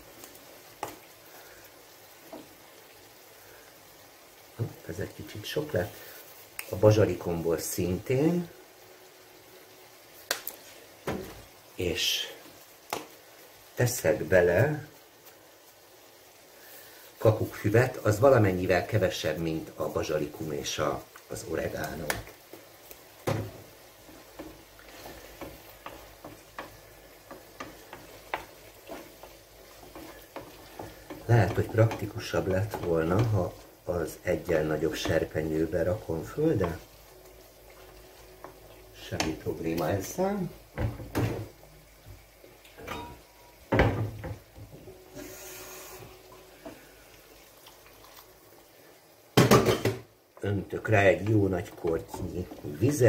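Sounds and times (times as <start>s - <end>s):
sauce sizzling: 0.0s - 53.0s
wooden spoon stirring sauce: 17.2s - 41.6s, 50.3s - 53.0s
brief hiss: 45.1s - 46.2s.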